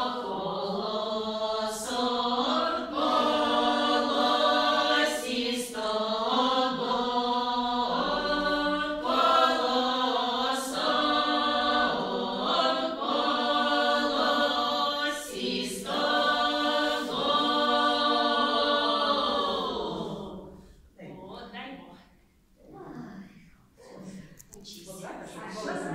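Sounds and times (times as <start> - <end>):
women singing a cappella: 0.0 - 22.1, 23.8 - 25.9.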